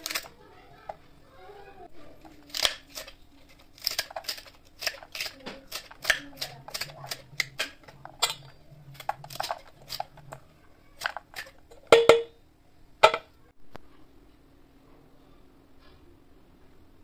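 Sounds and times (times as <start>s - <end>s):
vegetable cutter crunching cabbage: 0.0s - 0.4s, 2.2s - 11.7s.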